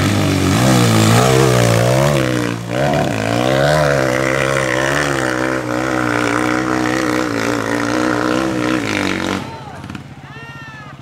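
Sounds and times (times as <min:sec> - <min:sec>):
dirt bike engine revving: 0:00.0 - 0:10.2.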